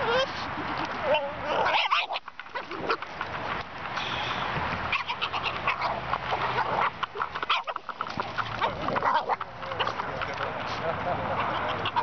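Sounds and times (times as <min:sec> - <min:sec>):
dog sounds: 0:04.9 - 0:12.0.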